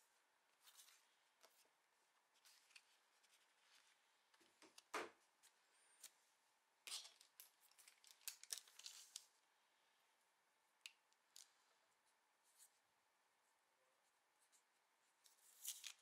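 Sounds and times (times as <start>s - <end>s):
paper rustling: 7.6s - 9.3s, 15.3s - 16.0s.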